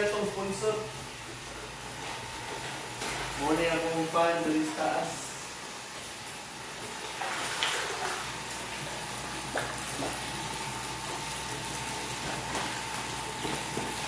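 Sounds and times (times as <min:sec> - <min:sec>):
water pouring into tank: 0:04.5 - 0:14.0
fish splashing at surface: 0:06.0 - 0:14.0.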